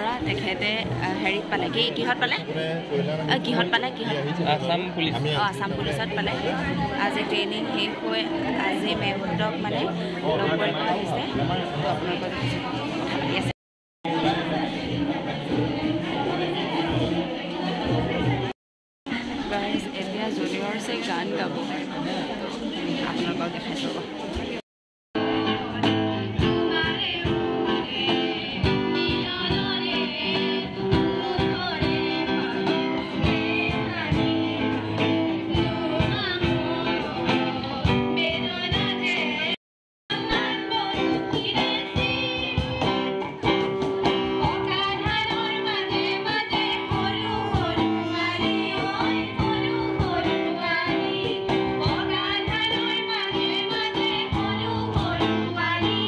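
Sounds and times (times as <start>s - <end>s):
cajon beat: 0.0s - 2.5s, 25.2s - 56.0s
women singing together: 5.6s - 11.4s, 26.3s - 43.3s, 44.1s - 56.0s.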